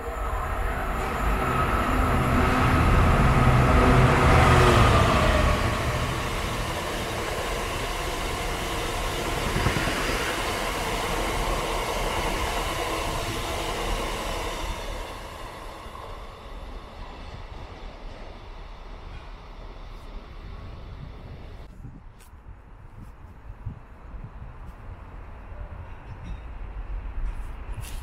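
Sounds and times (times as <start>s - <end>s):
freight train wheels rumbling: 0.0s - 21.7s.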